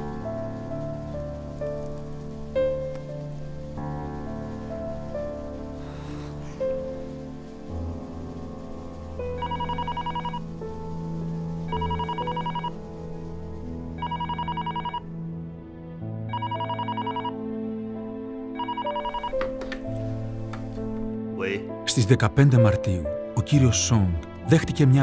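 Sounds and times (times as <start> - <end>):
soft background music: 0.0 - 25.0
telephone ringing with warbling trills: 9.4 - 10.4, 11.7 - 12.7, 14.0 - 15.0, 16.3 - 17.3.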